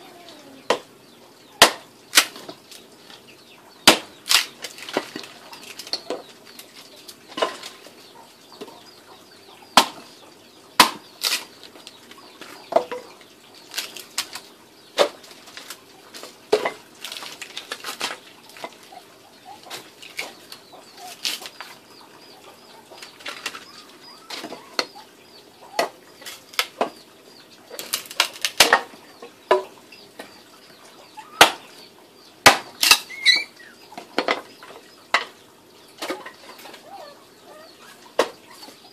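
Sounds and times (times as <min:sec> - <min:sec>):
machete chopping wood: 0:01.6 - 0:02.5, 0:03.8 - 0:05.1, 0:09.8 - 0:10.0, 0:10.8 - 0:11.5, 0:31.4 - 0:31.7, 0:32.4 - 0:33.1.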